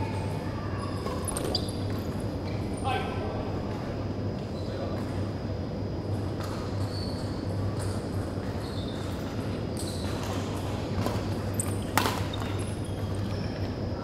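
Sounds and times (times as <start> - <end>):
steady low hum: 0.0 - 14.0
racket hitting shuttlecock: 11.9 - 12.4.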